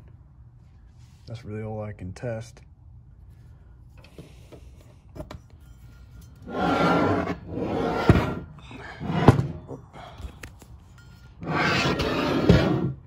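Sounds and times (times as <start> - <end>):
metal scraping on hard surface: 5.7 - 9.8, 10.8 - 13.0.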